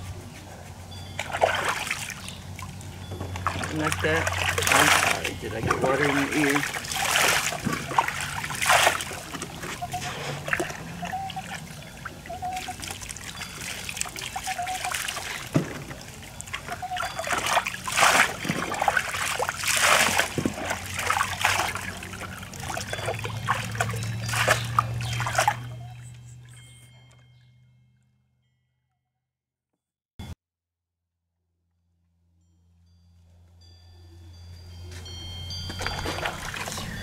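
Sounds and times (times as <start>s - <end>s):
water trickling and splashing: 1.1s - 27.2s, 35.0s - 37.0s.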